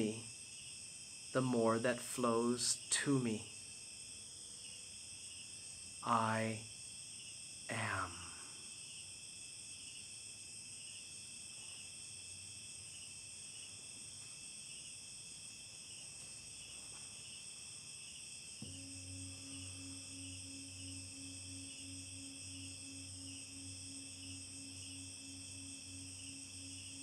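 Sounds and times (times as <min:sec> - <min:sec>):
crickets chirring: 0:00.0 - 0:27.0
singing bowl humming: 0:18.6 - 0:27.0.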